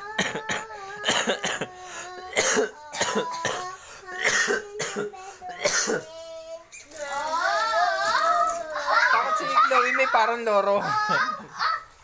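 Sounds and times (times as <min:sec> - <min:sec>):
child wavering vocal tones: 0:00.0 - 0:10.0, 0:10.8 - 0:12.0
child squawking like a parrot: 0:11.0 - 0:12.0.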